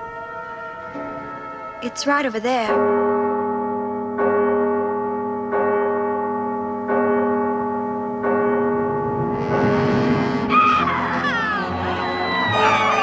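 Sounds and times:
clock-tower bell striking: 0.0 - 13.0.

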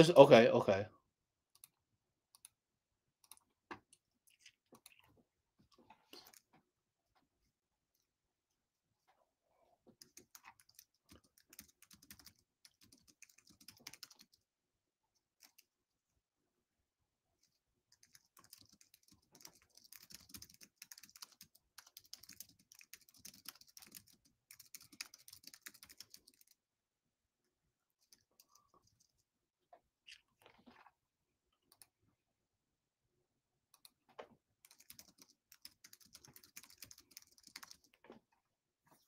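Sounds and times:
typing on keyboard: 9.9 - 14.5, 15.4 - 15.7, 17.9 - 26.6, 34.6 - 38.0.

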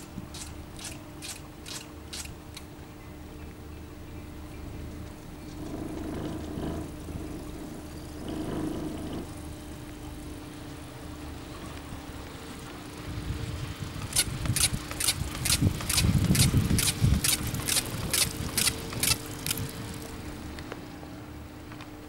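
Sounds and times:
chairlift steady hum: 0.0 - 22.0
heavy rumble: 4.3 - 21.9.

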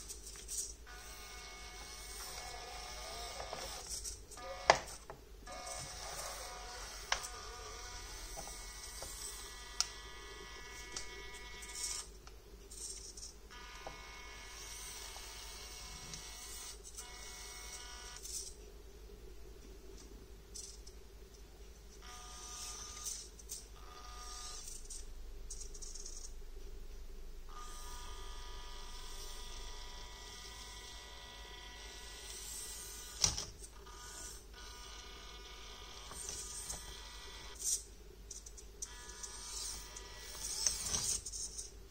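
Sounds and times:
toy truck gear motor whining: 0.0 - 12.1, 12.7 - 18.5, 22.0 - 26.3, 27.5 - 37.9, 38.8 - 41.7.

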